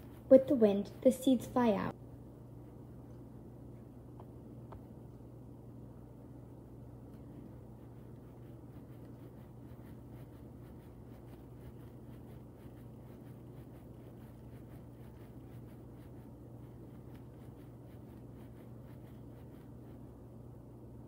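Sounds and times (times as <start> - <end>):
hand rubbing a latex balloon: 0.0 - 1.1, 7.4 - 20.0
steady low hum: 0.0 - 21.0.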